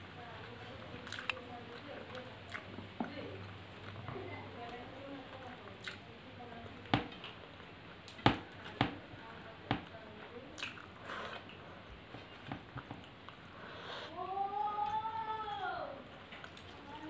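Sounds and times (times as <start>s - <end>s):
chewing and wet mouth sounds: 0.4s - 6.1s, 10.5s - 13.5s, 14.8s - 17.0s.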